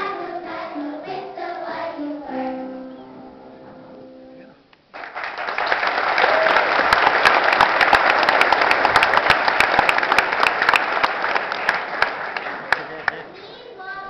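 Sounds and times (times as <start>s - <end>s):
audience applauding: 4.9s - 13.3s.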